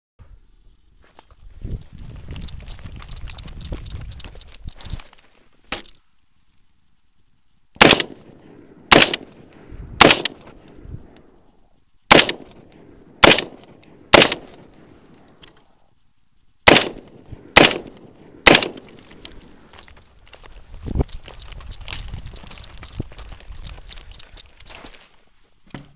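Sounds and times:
rifle shots with echo: 7.8 - 10.4, 12.1 - 14.7, 16.6 - 19.0.

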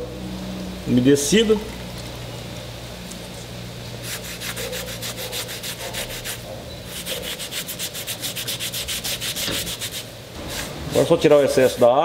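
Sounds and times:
cloth rubbing on wood: 4.0 - 12.0.

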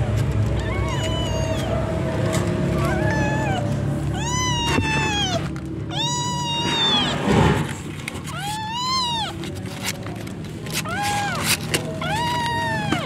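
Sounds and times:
kittens mewing: 0.4 - 13.0.

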